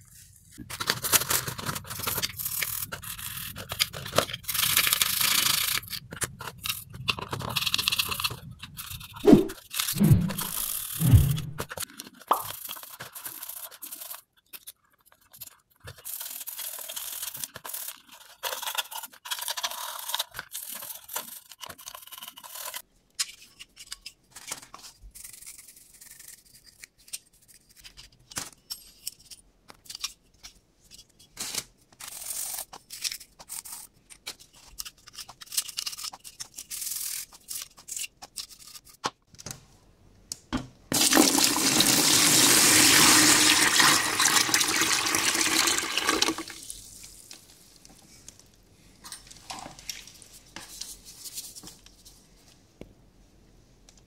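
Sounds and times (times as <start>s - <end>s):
water pouring into a basin: 40.9s - 46.6s.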